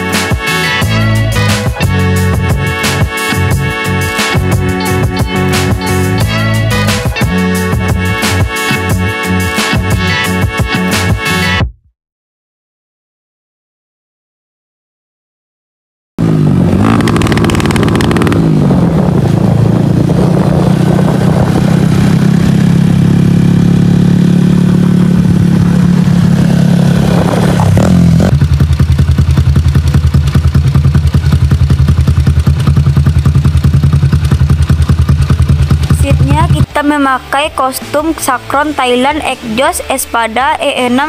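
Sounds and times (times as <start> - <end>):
motorcycle engine running: 0.0 - 11.6, 16.2 - 38.7
motorcycle engine idling: 0.8 - 8.2, 16.2 - 20.2, 21.3 - 27.0, 27.7 - 36.8.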